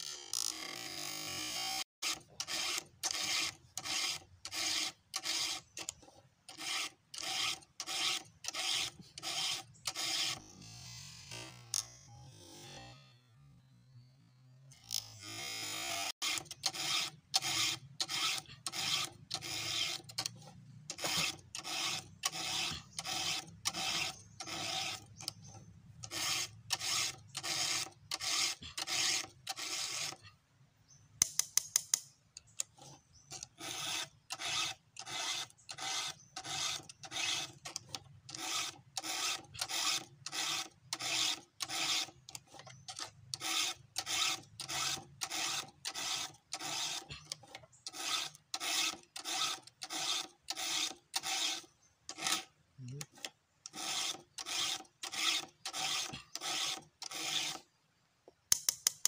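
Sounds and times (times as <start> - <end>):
file rasping on chainsaw chain: 0.4 - 10.5, 14.8 - 30.3, 31.3 - 57.7
sharp clicks: 31.2 - 43.4, 58.3 - 59.0.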